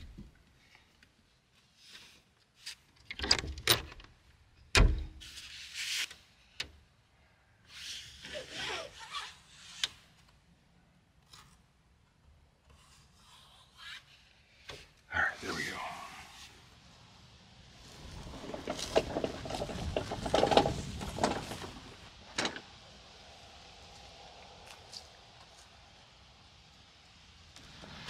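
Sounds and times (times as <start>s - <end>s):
glass window scraping along track: 17.9s - 22.6s.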